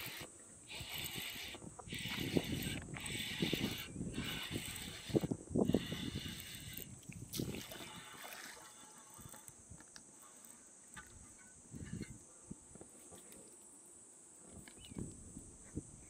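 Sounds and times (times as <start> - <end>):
light water sounds: 0.0 - 12.1
insects droning: 0.0 - 16.0.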